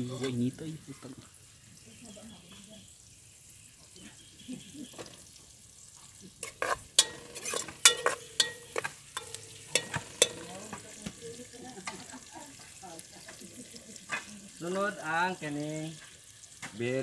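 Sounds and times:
onions sizzling in oil: 0.0 - 17.0
metal ladle clanking against pot: 6.4 - 10.8.

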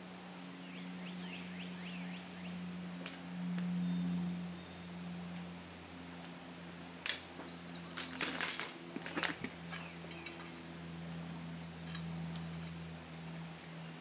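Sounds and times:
steady low hum: 0.0 - 14.0
bird chirping: 0.5 - 2.6, 5.9 - 8.4.

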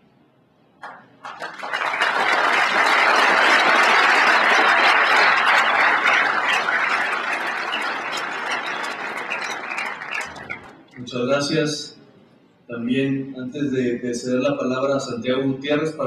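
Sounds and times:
audience applauding: 0.8 - 11.0.

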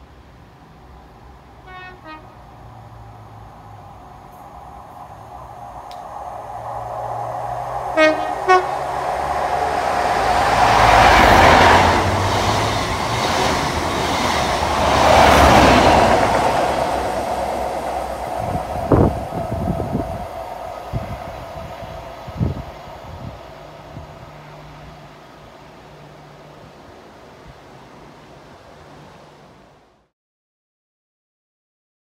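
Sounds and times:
train passing at speed: 0.0 - 30.1
train horn notes: 1.6 - 2.5, 7.9 - 9.8.

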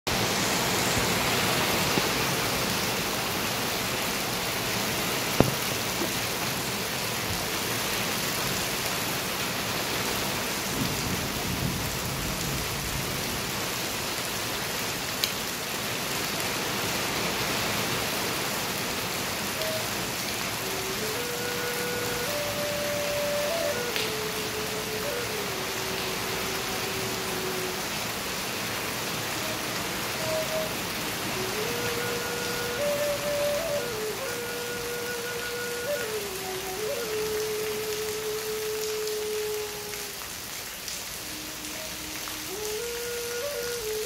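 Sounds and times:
steady rain: 0.1 - 44.0
double flute notes: 19.5 - 28.2, 29.1 - 44.0.

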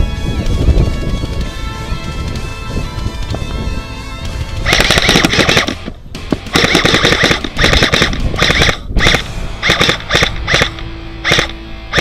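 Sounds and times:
airsoft gunfire bursts: 4.6 - 12.0.

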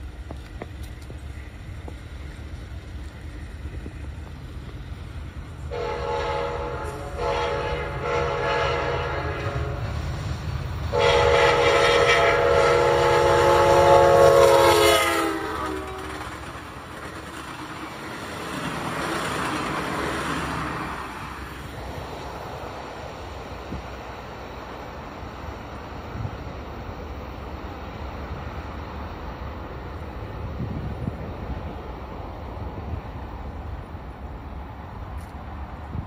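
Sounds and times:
locomotive air horn: 5.7 - 10.0, 10.9 - 16.3.

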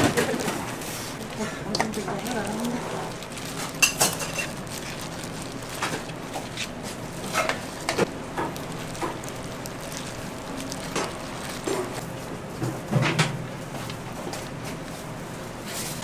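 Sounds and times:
wet squelching of crab and sauce: 0.8 - 6.9, 8.0 - 12.0.

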